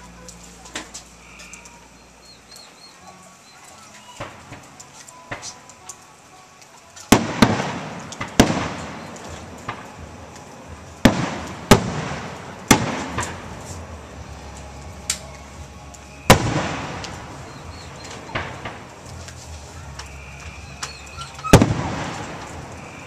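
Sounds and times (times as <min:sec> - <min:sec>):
faint firework pops: 0:07.1 - 0:10.0, 0:11.0 - 0:13.4, 0:18.0 - 0:22.9
firework shells booming: 0:07.1 - 0:10.1, 0:10.7 - 0:13.9, 0:16.2 - 0:19.1, 0:21.4 - 0:23.0.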